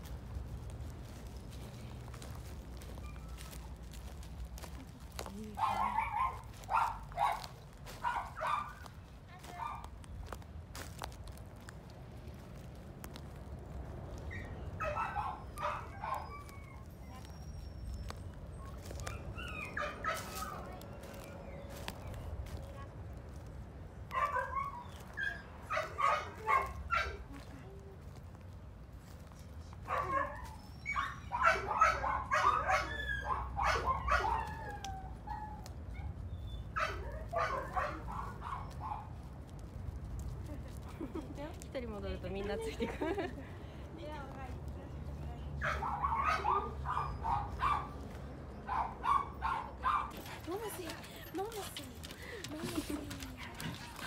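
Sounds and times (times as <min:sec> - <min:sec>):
dogs whining and yipping: 0:02.8 - 0:03.7, 0:14.2 - 0:22.2, 0:24.2 - 0:27.2, 0:29.9 - 0:39.1, 0:45.6 - 0:51.4.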